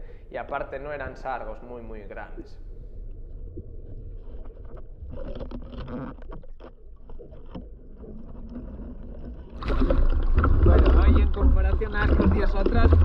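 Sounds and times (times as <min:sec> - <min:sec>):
muffled underwater rumble: 0:00.0 - 0:13.0
underwater clicks and knocks: 0:04.2 - 0:13.0.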